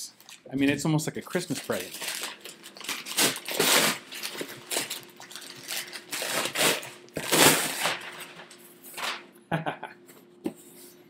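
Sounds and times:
packing material rustling: 1.3s - 9.2s.

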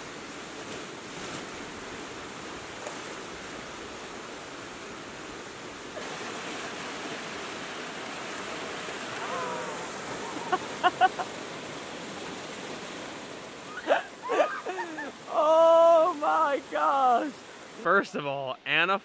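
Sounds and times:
water rushing down rock slide: 5.9s - 17.9s.

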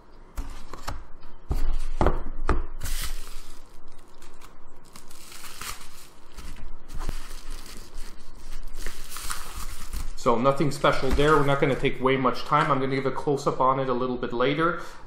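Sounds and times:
paper envelope tearing: 2.8s - 8.1s, 8.7s - 10.2s
paper crinkling: 2.8s - 11.9s.

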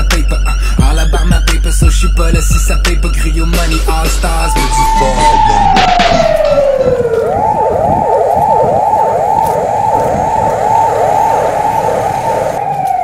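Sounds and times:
emergency siren yelp and wail: 3.6s - 13.0s.

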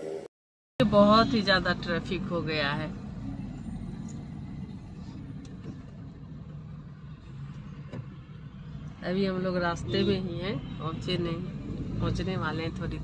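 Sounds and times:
car engine and road noise: 0.8s - 13.0s.

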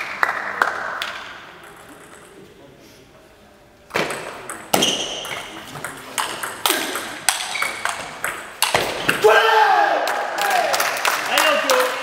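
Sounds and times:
table tennis ball hitting bats and table: 0.0s - 2.4s, 3.9s - 9.3s.

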